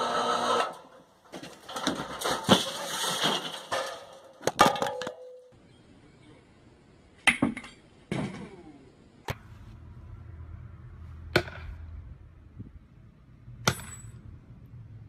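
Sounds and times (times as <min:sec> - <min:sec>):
glass smashing: 0:01.8 - 0:05.3.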